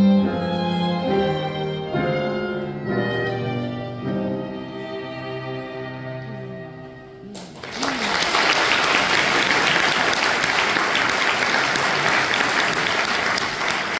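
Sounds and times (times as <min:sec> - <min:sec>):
audience applauding: 0:07.3 - 0:13.9.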